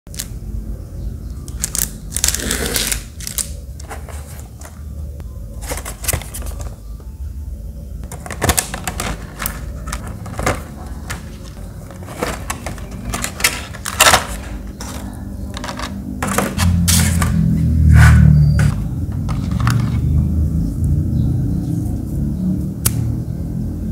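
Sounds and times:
steady low hum: 0.1 - 23.9
plastic packaging crackling: 1.5 - 4.8, 8.0 - 17.4.

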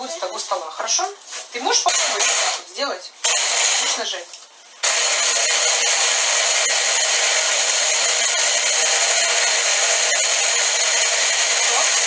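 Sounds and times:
blender motor running: 1.9 - 2.6, 3.2 - 4.0, 4.8 - 12.0.

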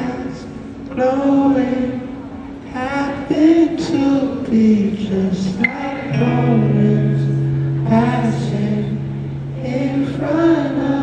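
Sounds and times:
man singing: 0.0 - 11.0
held low chord: 6.1 - 10.8.

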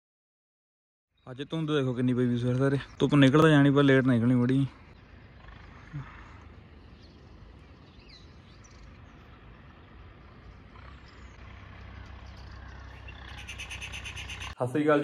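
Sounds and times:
faint bird chirps: 1.1 - 14.6
low steady rumble: 2.2 - 14.6.

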